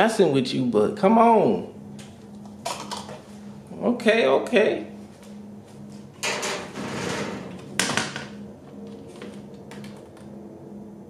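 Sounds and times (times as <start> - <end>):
low steady hum: 0.0 - 11.0
rustling scrape: 6.6 - 7.6.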